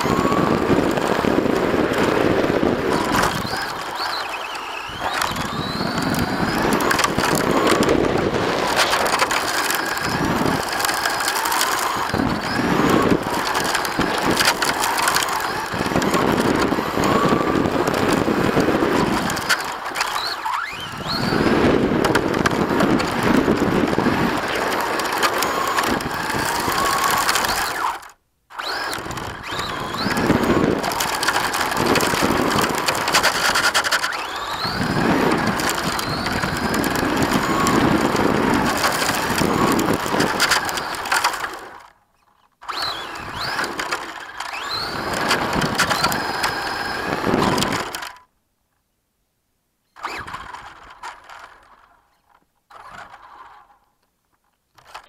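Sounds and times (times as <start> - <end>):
tyres crunching on asphalt: 0.0 - 41.8
electric motor whine: 0.0 - 41.9, 42.6 - 48.3.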